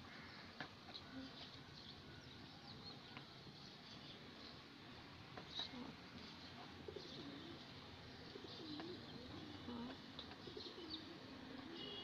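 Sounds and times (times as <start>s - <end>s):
doves cooing: 6.8s - 12.0s.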